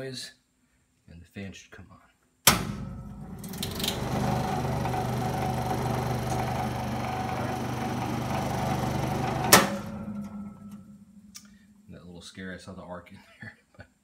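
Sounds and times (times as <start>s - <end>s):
power switch click: 2.5s - 2.8s
welder transformer buzzing: 2.5s - 11.4s
cooling fan running: 2.5s - 11.8s.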